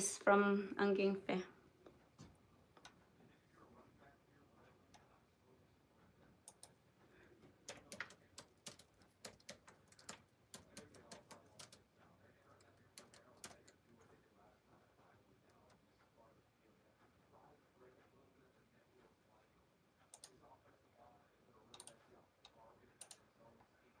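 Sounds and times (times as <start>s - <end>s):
faint tapping and clicking: 1.8s - 3.4s, 6.0s - 18.2s, 20.0s - 23.9s.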